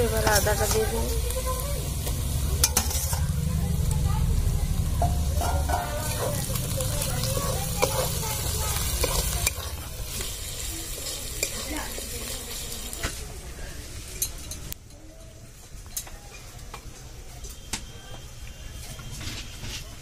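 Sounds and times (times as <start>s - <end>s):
onion sizzling in oil: 0.0s - 14.8s
metal spatula scraping pan: 2.0s - 3.4s.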